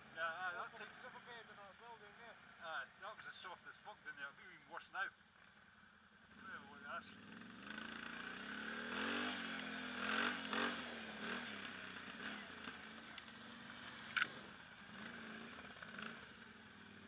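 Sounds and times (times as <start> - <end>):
quad bike engine revving: 6.2 - 17.0.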